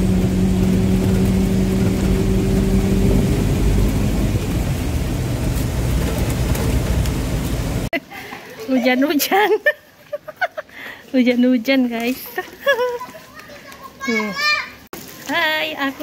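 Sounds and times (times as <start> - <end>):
engine hum: 0.0 - 7.9
road noise rumbling drone: 0.0 - 8.0.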